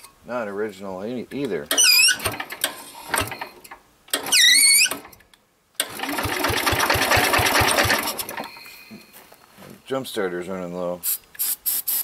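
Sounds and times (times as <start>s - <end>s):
starter cranking engine: 1.7s - 5.1s, 5.8s - 8.6s.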